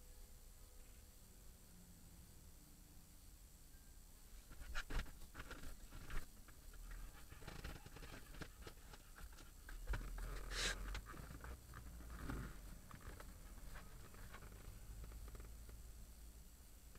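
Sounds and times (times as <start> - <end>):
short hiss: 10.4 - 11.0.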